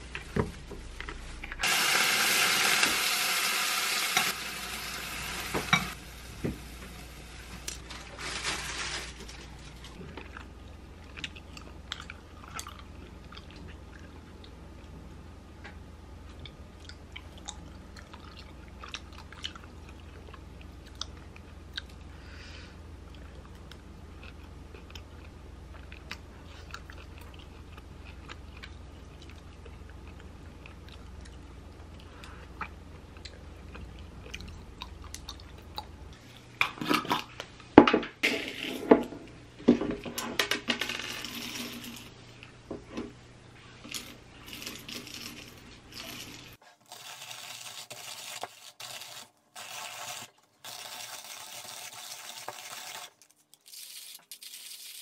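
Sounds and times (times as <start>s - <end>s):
eating sounds: 10.0s - 14.6s, 16.3s - 22.1s
coffee beans clattering: 40.7s - 42.1s, 44.0s - 48.4s
hand coffee grinder grinding: 43.9s - 55.0s.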